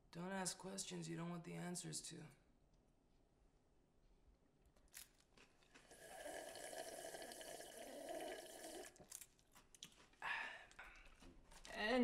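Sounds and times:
person drinking from plastic cup: 0:05.7 - 0:09.9.

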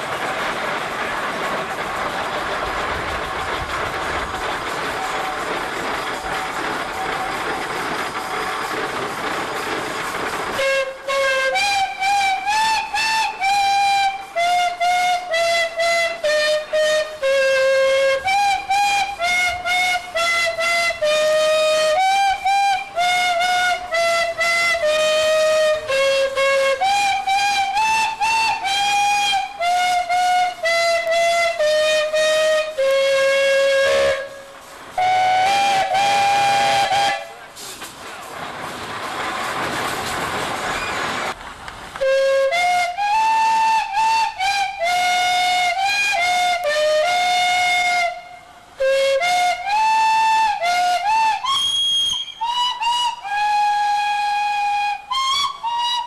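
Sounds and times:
steam hiss: 0:00.0 - 0:56.0
steam calliope playing a tune: 0:10.5 - 0:37.6, 0:42.0 - 0:56.0
steam whistles chord: 0:10.6 - 0:37.5, 0:42.0 - 0:56.0.

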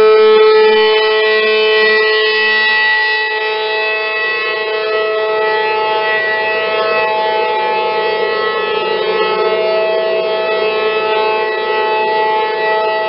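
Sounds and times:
tornado warning siren wailing: 0:00.0 - 0:13.0.

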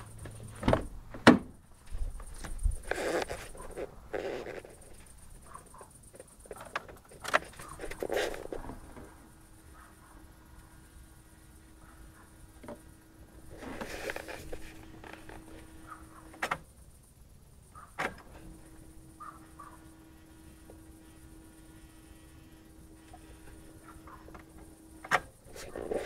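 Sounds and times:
faint electrical hum: 0:00.0 - 0:26.0
handling rustle: 0:01.8 - 0:09.2, 0:12.7 - 0:16.5.

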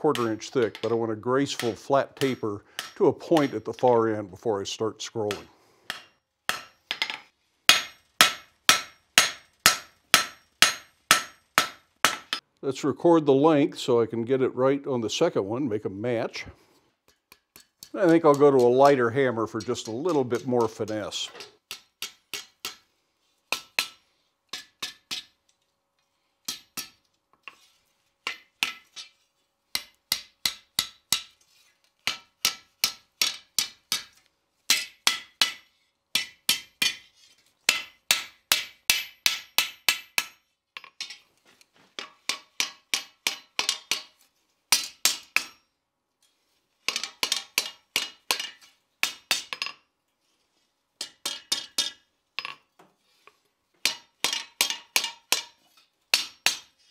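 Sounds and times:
hammer striking steel on anvil: 0:00.1 - 0:04.2, 0:05.3 - 0:12.4, 0:17.1 - 0:22.8, 0:23.5 - 0:25.3, 0:26.5 - 0:27.0, 0:32.1 - 0:37.1, 0:37.7 - 0:41.2, 0:42.0 - 0:45.7, 0:46.9 - 0:49.8, 0:51.0 - 0:52.6, 0:53.8 - 0:56.7.

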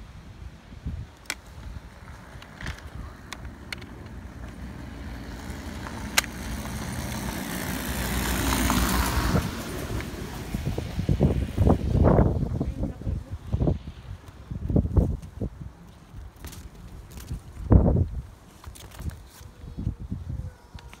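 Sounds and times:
vehicle passing: 0:03.0 - 0:12.6
sharp clicks: 0:05.8 - 0:06.7.

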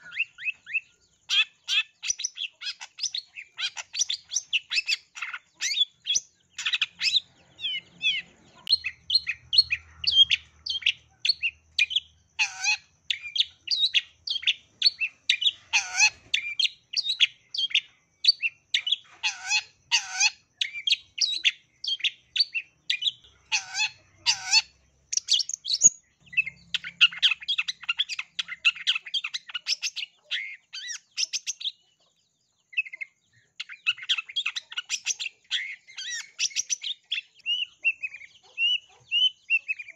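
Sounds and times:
down-slurred bird whistles: 0:00.0 - 0:09.4, 0:32.8 - 0:39.9.

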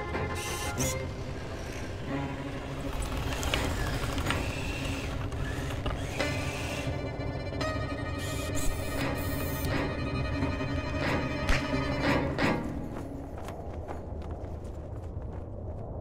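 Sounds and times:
machine whirring: 0:00.4 - 0:07.2.

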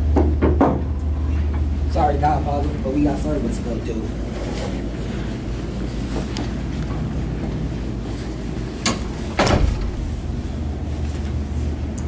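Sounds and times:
low room hum: 0:00.0 - 0:12.0
heavy thump: 0:09.4 - 0:10.3.

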